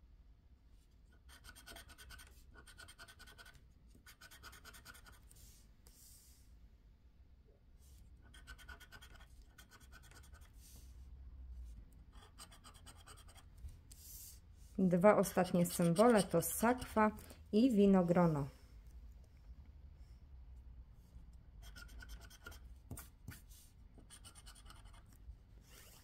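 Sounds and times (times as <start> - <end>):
scraper scratching lottery card: 1.2 - 5.4, 8.2 - 10.6, 15.0 - 17.0.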